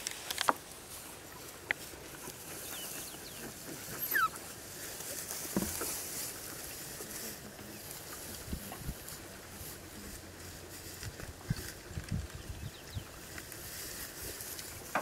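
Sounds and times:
high squeaky calls: 2.7s - 4.4s.

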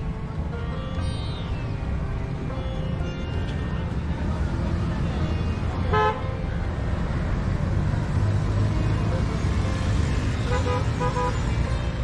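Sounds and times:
vehicle horn tooting: 5.9s - 6.3s.

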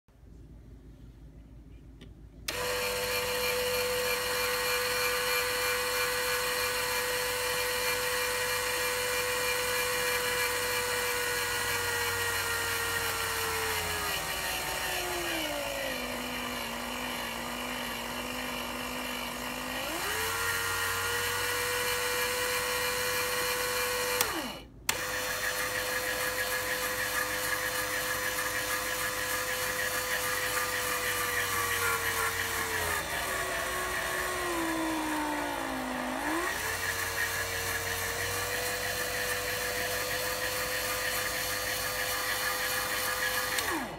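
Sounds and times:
gear motor whining: 2.5s - 43.9s
motor click: 24.1s - 25.1s, 43.4s - 43.9s.

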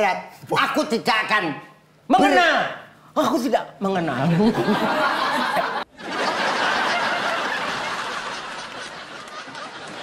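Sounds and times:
group of people laughing: 4.3s - 10.0s.

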